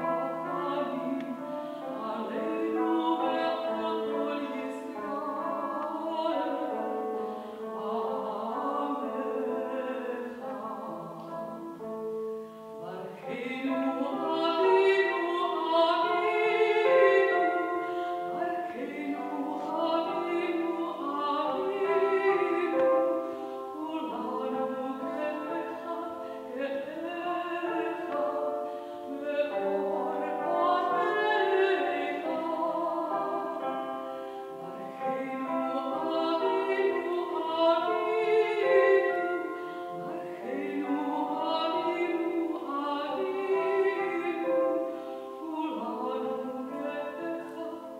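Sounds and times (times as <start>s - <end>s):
woman singing classical: 0.0s - 47.9s.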